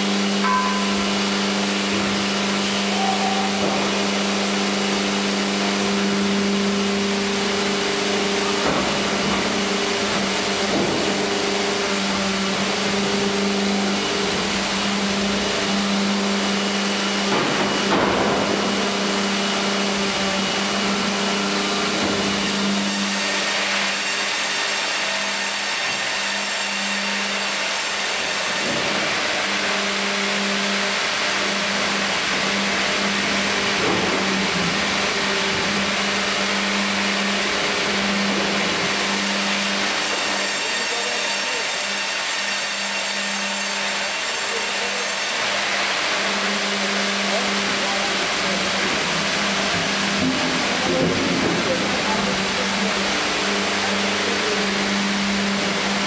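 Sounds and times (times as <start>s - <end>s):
band saw machine hum: 0.0s - 56.0s
saw blades hissing while cutting: 18.4s - 33.2s, 34.0s - 50.9s.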